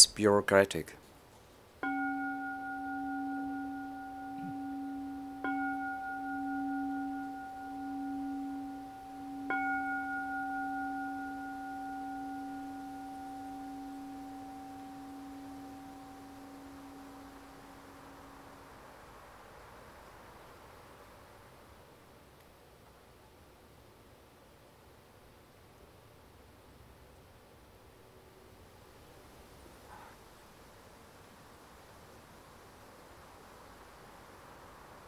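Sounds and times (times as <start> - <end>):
meditation bowl bell ringing: 1.8 - 18.8.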